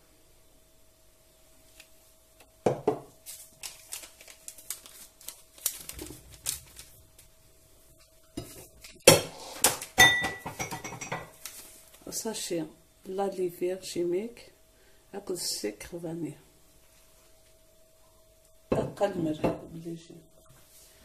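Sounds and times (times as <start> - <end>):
faint steady hum: 0.0 - 21.0
bowls and utensils clinking: 10.0 - 11.4.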